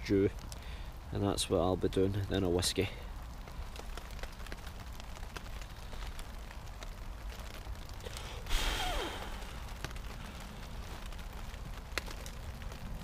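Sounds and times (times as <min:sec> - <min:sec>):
log fire crackling: 0:00.0 - 0:13.0
hot pot hissing on snow: 0:07.8 - 0:11.8.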